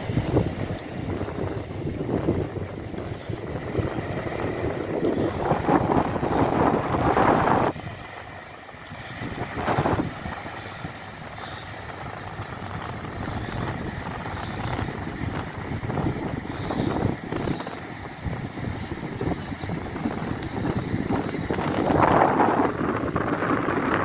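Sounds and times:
waves breaking on beach: 0:00.0 - 0:24.0
wind buffeting microphone: 0:00.0 - 0:24.0.

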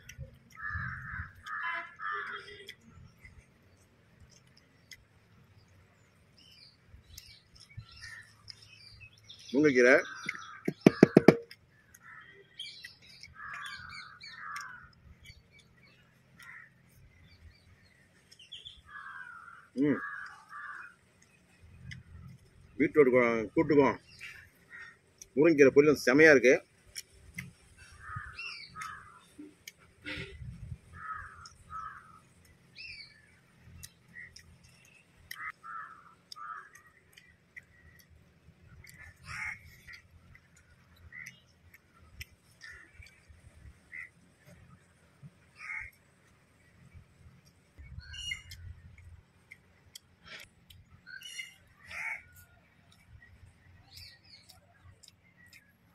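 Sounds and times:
small birds chirping: 0:00.0 - 0:55.9
crows cawing: 0:00.5 - 0:02.6, 0:10.0 - 0:12.5, 0:13.4 - 0:15.0, 0:16.4 - 0:16.8, 0:18.8 - 0:21.0, 0:24.2 - 0:25.1, 0:27.8 - 0:29.3, 0:31.0 - 0:32.3, 0:35.3 - 0:38.0, 0:38.9 - 0:40.0, 0:42.6 - 0:43.2, 0:43.9 - 0:44.2, 0:45.6 - 0:46.0, 0:51.1 - 0:52.6
high bird chirp: 0:06.4 - 0:22.0, 0:27.8 - 0:30.3, 0:47.8 - 0:49.0, 0:50.9 - 0:52.4.

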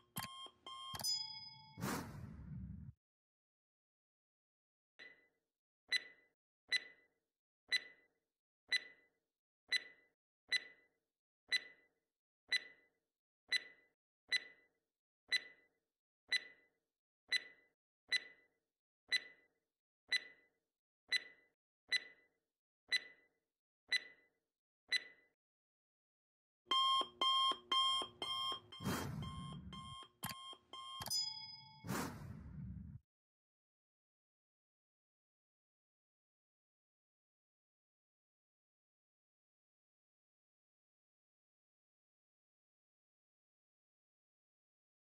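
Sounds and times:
clock ticking: 0:00.0 - 0:01.2, 0:26.7 - 0:31.8.

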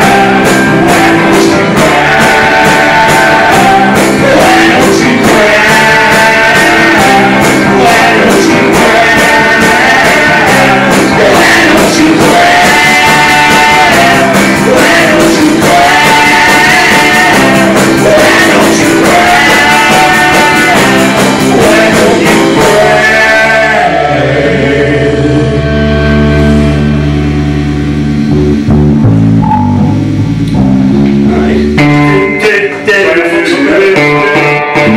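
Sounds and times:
drum kit beat: 0:00.0 - 0:23.9
man singing: 0:00.0 - 0:26.0, 0:31.2 - 0:34.9
electric guitar: 0:00.0 - 0:34.9
held low chord ringing: 0:25.9 - 0:32.2.

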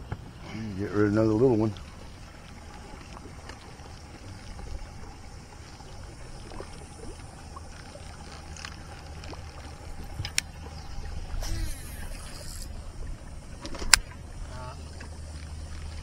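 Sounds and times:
boat motor humming: 0:00.0 - 0:16.0
thin steady whine: 0:00.4 - 0:16.0
faint ticks: 0:05.6 - 0:10.6.

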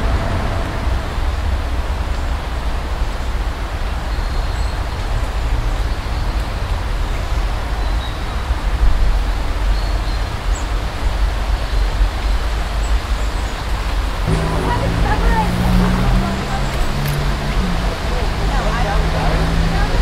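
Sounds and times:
low rumble: 0:00.0 - 0:03.2, 0:14.2 - 0:20.0.

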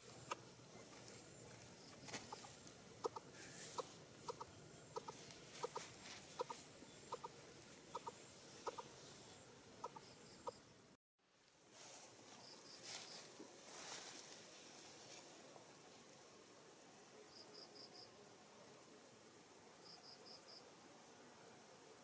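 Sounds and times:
bird short clucking notes: 0:02.3 - 0:08.9.

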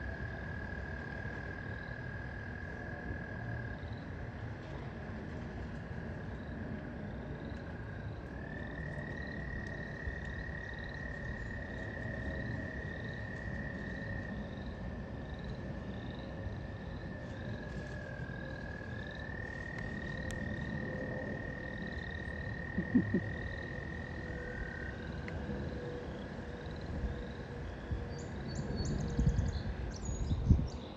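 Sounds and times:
faint short frog calls: 0:22.6 - 0:24.7
frog high trill: 0:22.8 - 0:23.3.

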